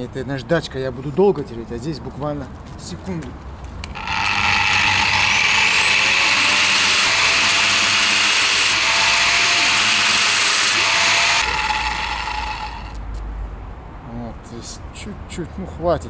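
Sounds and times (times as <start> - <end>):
electric grinder whining: 3.8 - 13.0.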